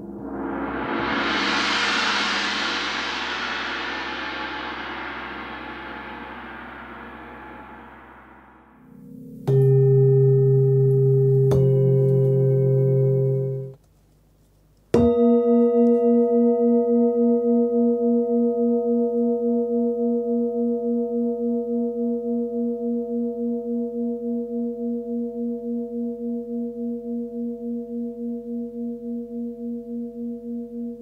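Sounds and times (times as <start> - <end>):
singing bowl ringing low tone: 0.0 - 13.8, 15.0 - 31.0
singing bowl struck with mallet: 4.1 - 13.7.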